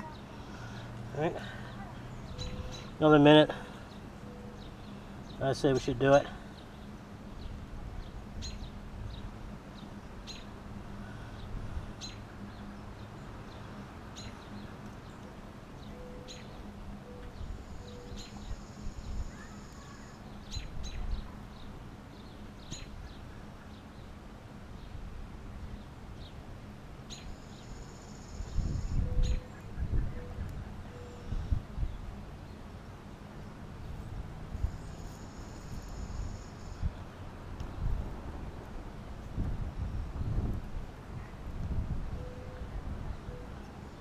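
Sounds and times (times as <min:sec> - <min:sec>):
bird chirping: 0:01.7 - 0:05.9, 0:11.4 - 0:24.1, 0:27.1 - 0:32.6
bird trilling: 0:02.2 - 0:03.0.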